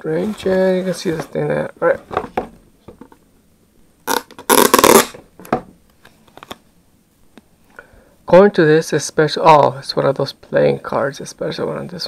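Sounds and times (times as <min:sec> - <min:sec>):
cardboard rustling scrape: 0:00.1 - 0:02.4.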